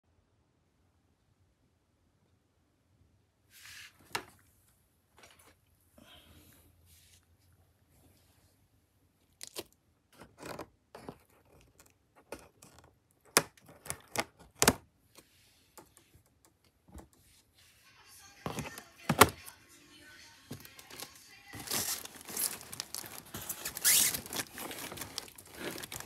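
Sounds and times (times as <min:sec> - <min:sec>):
cardboard rustling: 0:10.2 - 0:15.3, 0:18.4 - 0:19.4, 0:20.5 - 0:26.0
cardboard box handled: 0:18.5 - 0:19.4, 0:20.5 - 0:26.0
plastic strap being cut: 0:20.5 - 0:26.0.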